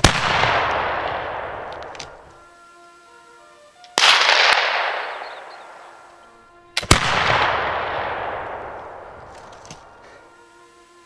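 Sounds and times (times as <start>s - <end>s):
flintlock rifle shots: 0.0s - 2.3s, 4.0s - 6.1s, 6.8s - 10.1s.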